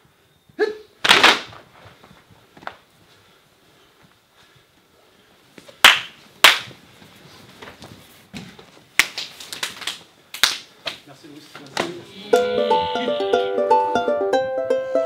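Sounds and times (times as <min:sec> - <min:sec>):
loud hand claps: 0:05.8 - 0:06.8, 0:09.0 - 0:11.0
soft hand claps and slaps: 0:05.8 - 0:06.8, 0:09.0 - 0:11.0.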